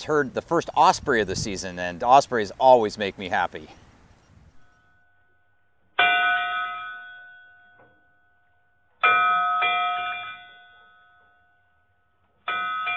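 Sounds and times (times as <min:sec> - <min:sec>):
metal bell ringing: 0:06.0 - 0:08.4, 0:09.0 - 0:11.6, 0:12.5 - 0:12.9.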